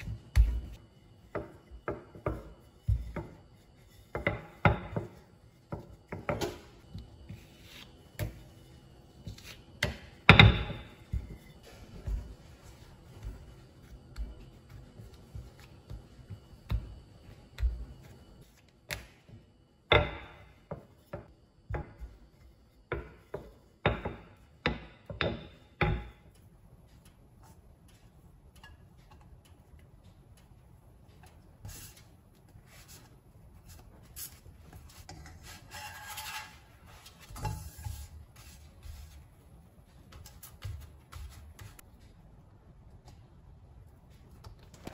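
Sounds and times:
dough knocking and rubbing on mat: 0.0s - 28.7s, 36.9s - 41.9s
spatula scraping wok: 34.0s - 39.2s.

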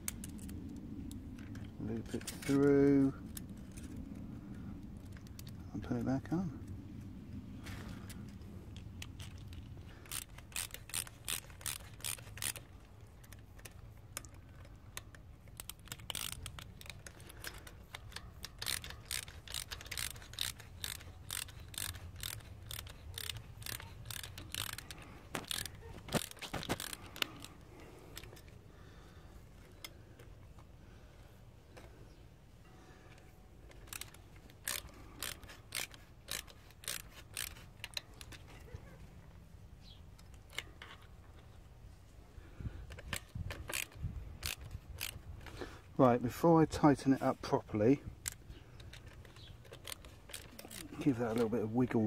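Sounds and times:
ratchet wrench clicking: 8.0s - 28.6s, 33.0s - 38.5s, 40.2s - 41.1s, 42.8s - 45.6s, 48.2s - 52.0s.

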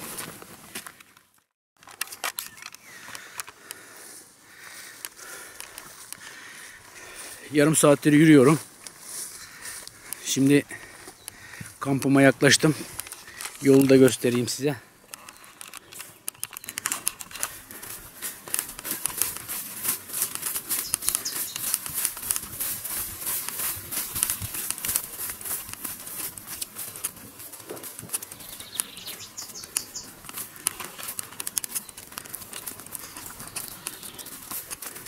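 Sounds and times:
footsteps swishing through grass: 3.8s - 11.1s, 17.4s - 35.0s.

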